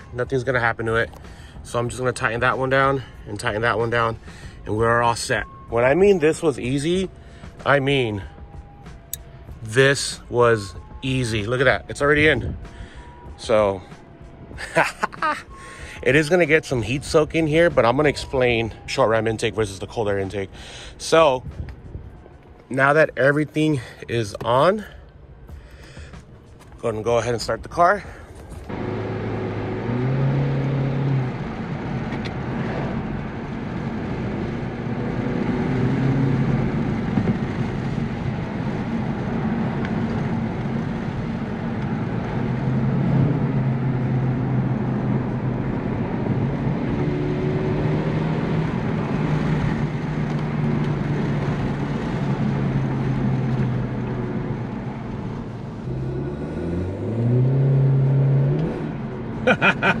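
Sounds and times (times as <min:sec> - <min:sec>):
road noise: 0:00.0 - 1:00.0
car engine accelerating: 0:28.6 - 1:00.0.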